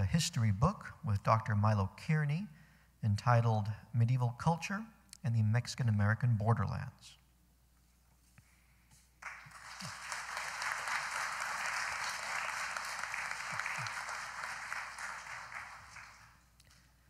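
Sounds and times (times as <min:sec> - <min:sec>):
audience applauding: 0:09.2 - 0:16.5.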